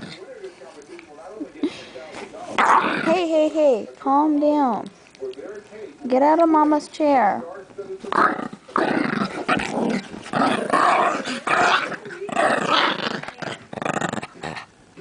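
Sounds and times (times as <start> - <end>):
small dog play-growling: 0.0 - 0.4, 2.2 - 3.4, 8.0 - 15.0.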